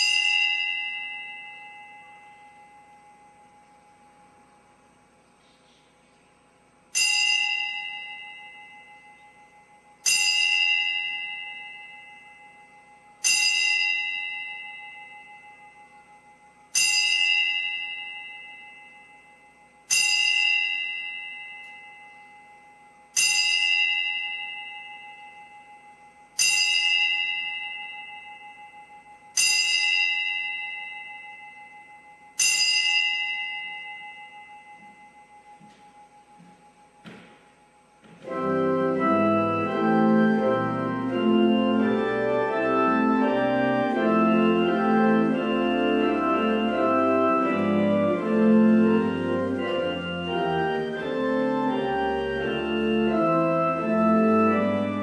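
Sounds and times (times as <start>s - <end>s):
bell strokes ringing: 0.0s - 3.7s, 6.9s - 39.7s.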